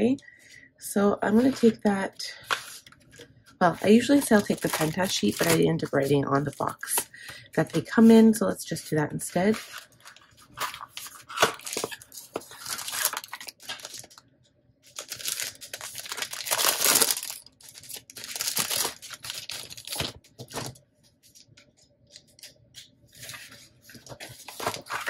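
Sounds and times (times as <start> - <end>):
plastic wrapping crinkling: 1.4 - 6.2, 9.4 - 14.2, 14.9 - 25.0
paper sleeve rustling: 9.4 - 14.2, 14.9 - 21.5, 23.1 - 25.0.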